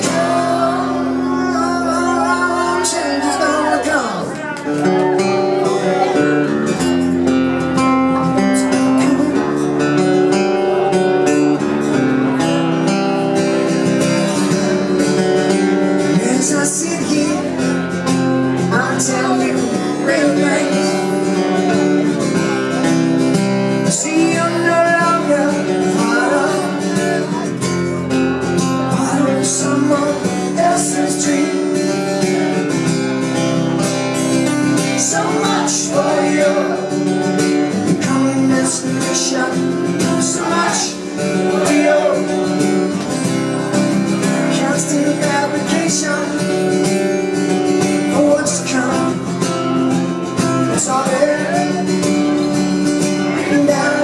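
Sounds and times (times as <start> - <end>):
man singing lead vocal: 0.0 - 4.3, 8.4 - 10.0, 15.9 - 23.1, 23.7 - 27.8, 28.5 - 32.8, 34.4 - 42.9, 44.2 - 54.0
acoustic guitars strumming: 0.0 - 54.0.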